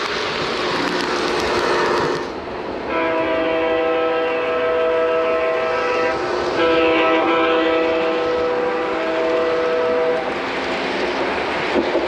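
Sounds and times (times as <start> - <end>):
model train wheels rushing: 0.0 - 2.6
train horn chord: 2.9 - 10.4.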